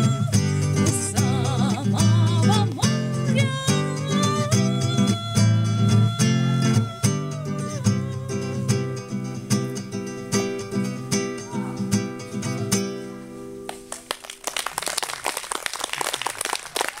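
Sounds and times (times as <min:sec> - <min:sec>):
acoustic guitar chords: 0:00.0 - 0:13.9
audience applause: 0:13.7 - 0:17.0.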